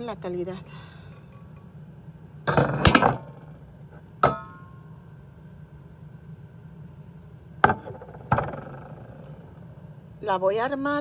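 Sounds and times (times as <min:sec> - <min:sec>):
pots and pans clanking: 0:02.5 - 0:03.4, 0:04.2 - 0:04.7
ringing metal clang: 0:04.2 - 0:04.9.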